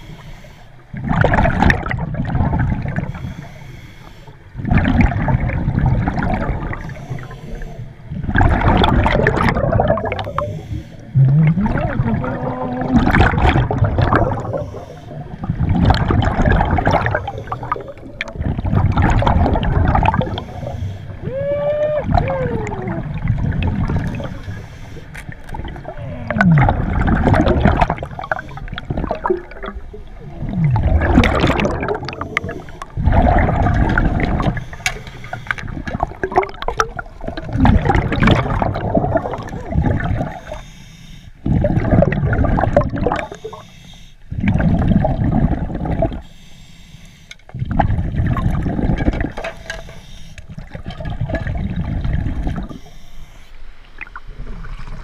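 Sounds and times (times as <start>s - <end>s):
diver exhaling bubbles underwater: 0.9s - 3.2s, 4.6s - 7.3s, 8.1s - 24.4s, 25.3s - 34.6s, 35.6s - 40.6s, 41.4s - 43.6s, 44.3s - 46.2s, 47.5s - 49.4s, 50.5s - 52.8s.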